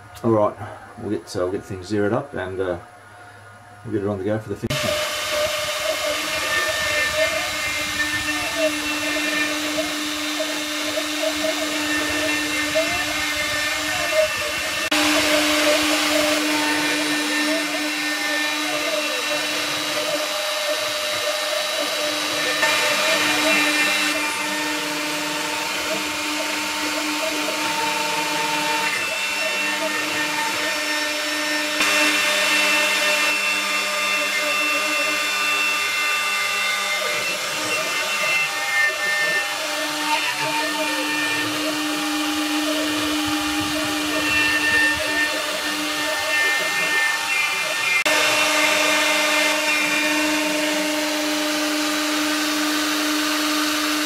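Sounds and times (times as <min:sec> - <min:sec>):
end mill cutting wood: 0:04.7 - 0:54.0
router spindle whine: 0:04.7 - 0:54.0.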